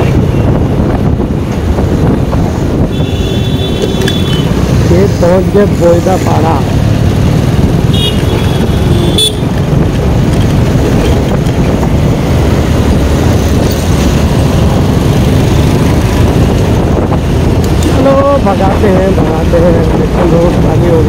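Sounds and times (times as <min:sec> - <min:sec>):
motorcycle engine: 0:00.0 - 0:21.0
wind rumble: 0:00.0 - 0:21.0
vehicle horn toot: 0:02.9 - 0:04.5, 0:07.9 - 0:09.5.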